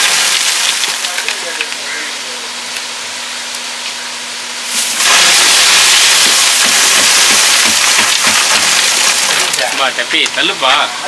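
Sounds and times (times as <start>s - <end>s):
crushed ice pouring into crate: 0.0s - 1.6s, 4.7s - 9.9s.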